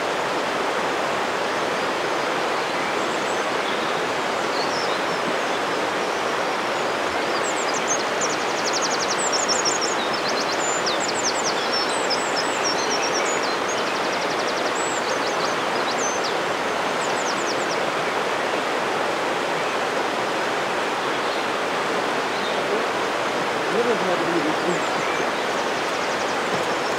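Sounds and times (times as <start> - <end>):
river water rushing: 0.0 - 26.9
songbird singing fast trills: 7.2 - 18.2, 22.2 - 26.9.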